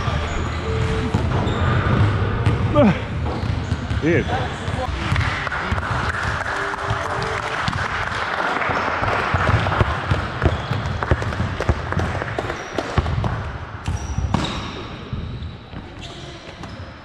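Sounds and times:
shoe squeaks: 0.0s - 2.4s, 13.8s - 17.0s
basketballs bouncing on hardwood: 0.7s - 15.4s.

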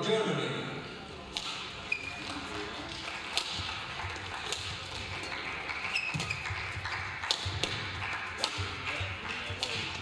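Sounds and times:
shoe squeaks on court: 1.8s - 2.4s, 5.9s - 6.6s.

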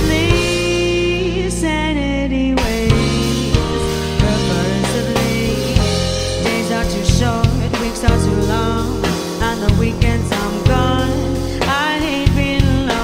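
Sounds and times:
live band playing: 0.0s - 1.9s, 2.6s - 13.0s
woman singing: 0.0s - 13.0s.

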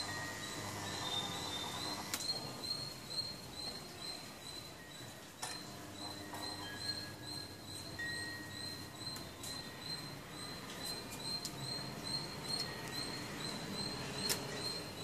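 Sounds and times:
small animal chirping: 0.4s - 4.9s
sharp clicks: 14.2s - 14.6s.

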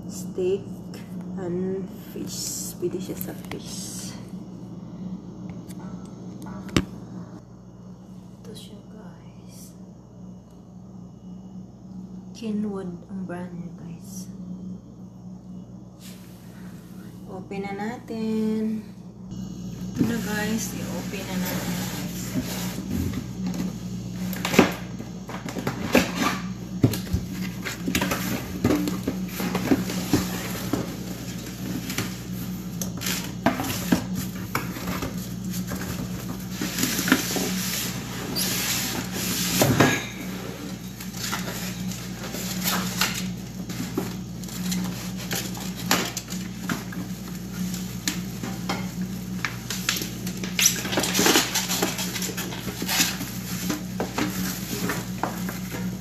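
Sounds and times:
steady low hum: 0.0s - 56.0s
packing paper and polystyrene shifting: 19.9s - 56.0s.

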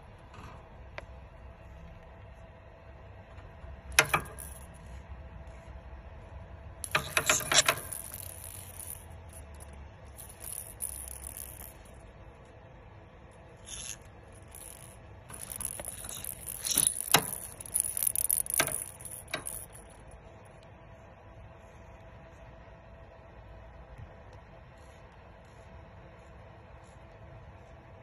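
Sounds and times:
plastic rattle toy rattling: 3.9s - 4.8s, 6.8s - 12.0s, 13.6s - 20.2s.

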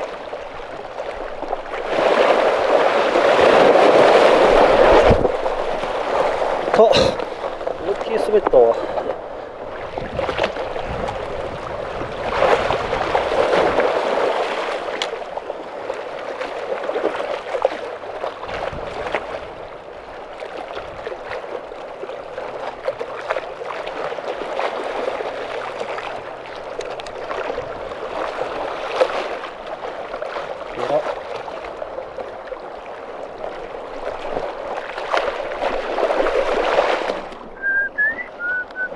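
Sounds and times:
water sloshing among rocks: 0.0s - 38.9s.

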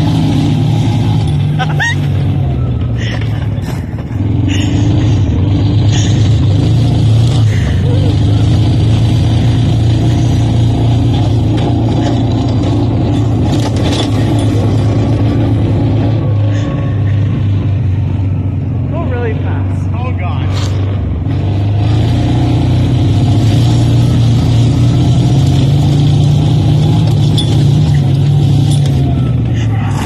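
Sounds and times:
utility vehicle engine running: 0.0s - 30.0s
knocks and rattles: 11.0s - 15.6s, 25.8s - 29.1s.

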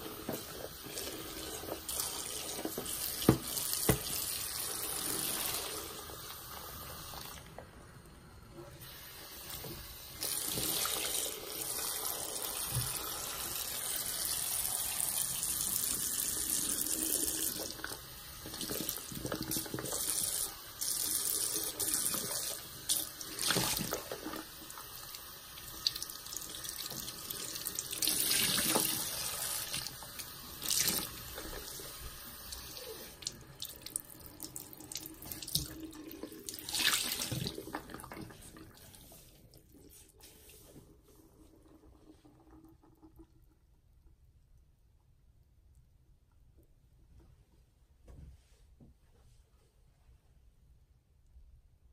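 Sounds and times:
tap running into sink: 1.8s - 4.4s
water gushing from squeezed sponge: 26.7s - 42.6s.

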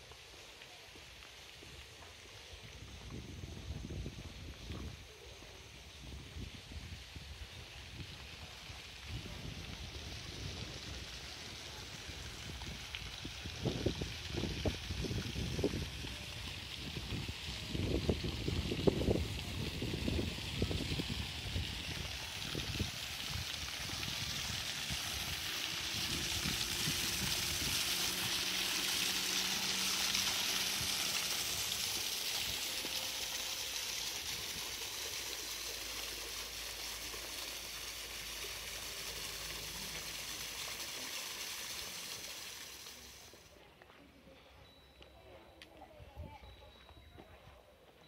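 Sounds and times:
water rushing down a stream: 0.0s - 43.6s
wind buffeting microphone: 6.0s - 32.6s.

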